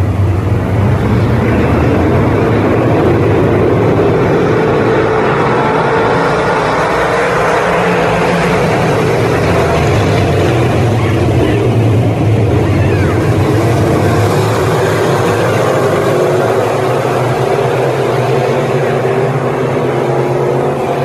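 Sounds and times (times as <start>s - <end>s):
race car engines roaring: 0.0s - 21.0s.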